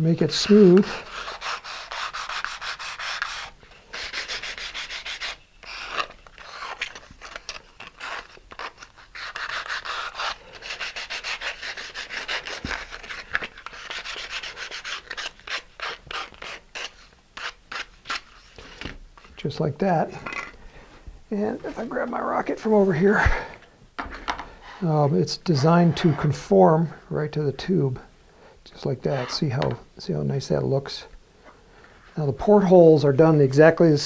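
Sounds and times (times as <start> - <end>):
sandpaper rubbing plastic edge: 0.4 - 18.6.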